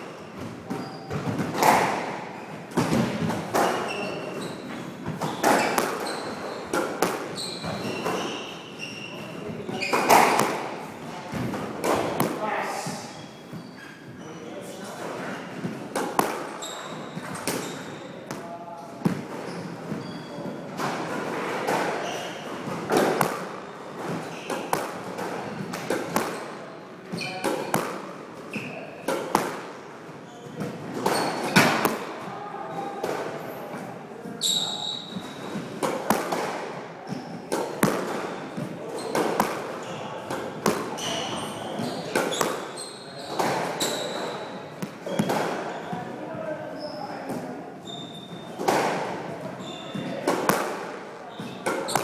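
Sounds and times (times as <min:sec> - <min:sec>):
shoes squeaking on hardwood floor: 0:00.0 - 0:18.4, 0:19.0 - 0:29.5, 0:30.1 - 0:50.3, 0:51.2 - 0:52.0
squash ball hitting wall: 0:00.4 - 0:04.2, 0:05.0 - 0:08.5, 0:09.3 - 0:12.4, 0:15.5 - 0:18.4, 0:20.7 - 0:26.6, 0:27.2 - 0:29.8, 0:30.6 - 0:32.3, 0:35.0 - 0:45.7, 0:48.5 - 0:52.0.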